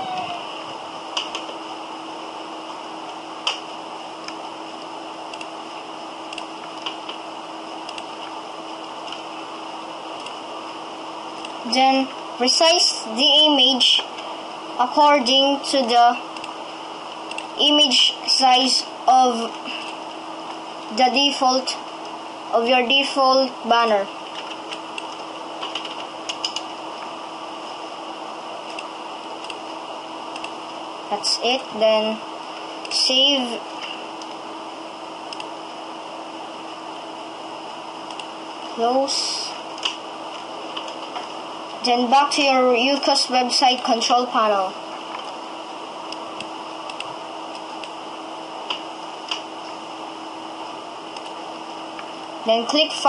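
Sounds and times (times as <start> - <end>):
faint low hum: 0.0 - 53.0
computer mouse clicking: 1.2 - 1.6, 5.3 - 5.5, 6.3 - 7.2, 7.8 - 8.3, 17.3 - 17.5, 24.3 - 26.7, 28.7 - 29.7, 30.3 - 30.6, 35.3 - 35.5, 38.1 - 38.3, 46.1 - 48.0, 51.1 - 51.4
keyboard and mouse clicks: 1.2 - 1.6, 7.8 - 8.3, 24.3 - 26.7, 30.3 - 30.6.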